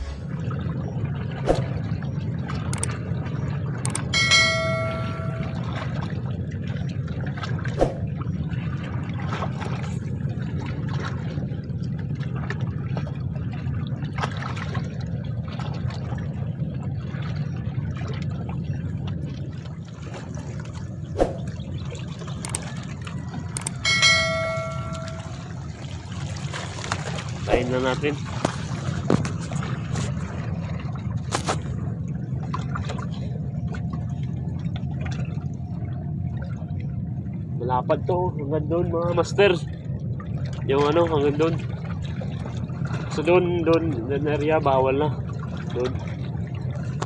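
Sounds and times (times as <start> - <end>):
wind rumble: 0.0 - 40.7
bell ringing: 4.0 - 5.8, 23.6 - 25.5.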